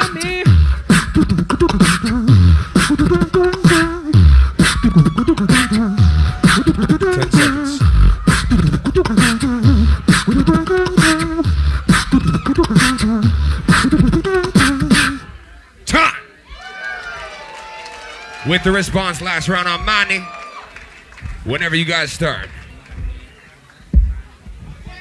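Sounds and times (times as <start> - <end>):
beatbox snare and hi-hat clicks: 0.0 - 15.2
beatbox bass hits: 0.0 - 15.3
sliding vocal bass line: 0.0 - 15.4.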